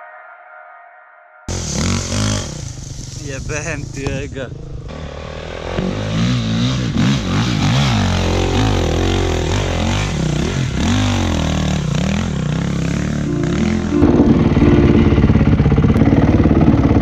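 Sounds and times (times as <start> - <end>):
dirt bike engine revving: 1.5 - 3.1, 4.8 - 13.3.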